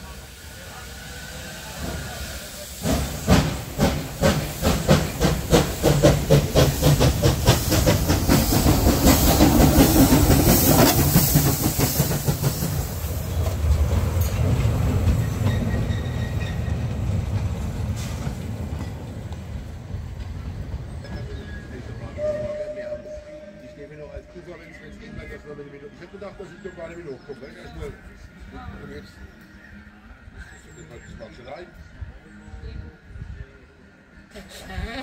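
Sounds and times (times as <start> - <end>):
steam hiss: 0.0 - 18.9
steam locomotive exhaust chuffs: 0.0 - 19.8.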